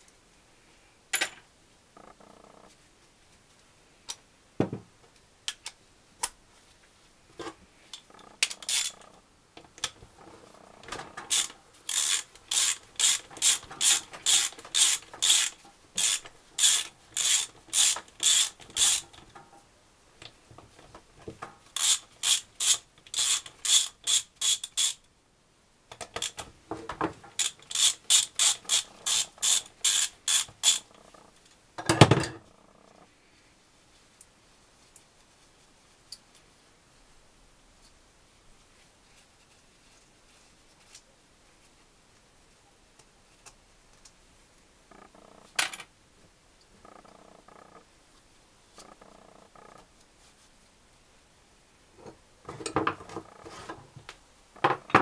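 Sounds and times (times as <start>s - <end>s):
ratchet wrench clicking: 8.4s - 9.0s, 11.3s - 19.0s, 21.8s - 25.0s, 27.4s - 30.8s.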